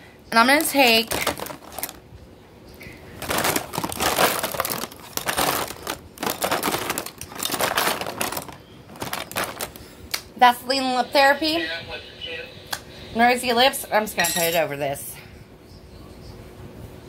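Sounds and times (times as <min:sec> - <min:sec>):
packaging crinkling and rustling: 0:00.5 - 0:02.0, 0:03.1 - 0:09.9.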